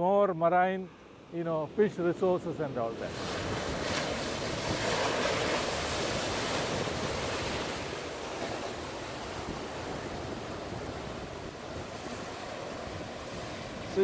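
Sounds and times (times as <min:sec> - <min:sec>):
waves breaking on rocks: 0:02.9 - 0:14.0
wind buffeting microphone: 0:02.9 - 0:14.0.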